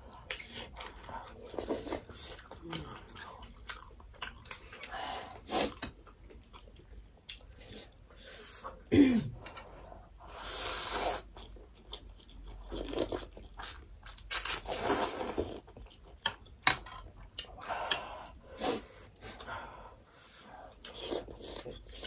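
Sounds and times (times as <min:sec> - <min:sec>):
chewing: 0:00.0 - 0:08.2, 0:11.2 - 0:18.0, 0:20.7 - 0:22.0.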